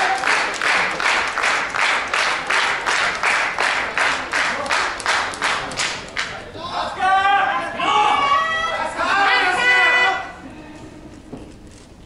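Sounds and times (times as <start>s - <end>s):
audience clapping in rhythm: 0.0s - 6.4s.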